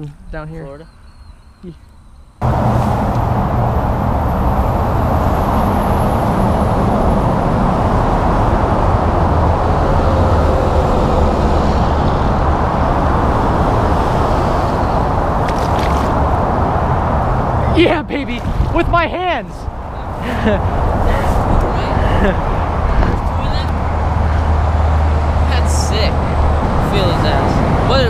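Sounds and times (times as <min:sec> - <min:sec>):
steady loud rushing noise: 0:02.4 - 0:28.0
hands splashing in water: 0:15.4 - 0:16.3.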